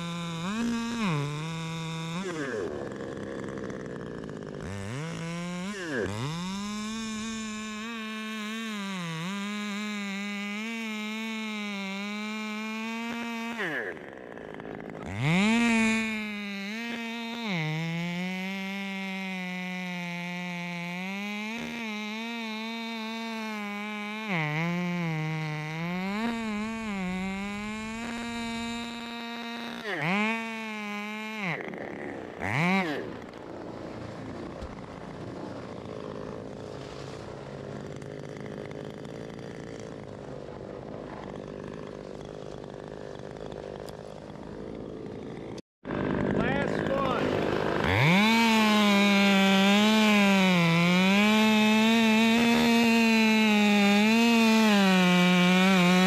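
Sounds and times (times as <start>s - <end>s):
chainsaw cutting at full throttle: 0.0s - 56.0s
chainsaw rasp: 0.0s - 56.0s.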